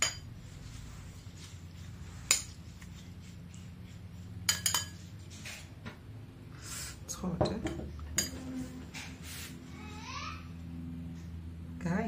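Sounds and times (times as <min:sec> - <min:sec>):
spoon clinking on ceramic bowl: 0:04.4 - 0:05.1, 0:07.4 - 0:08.4.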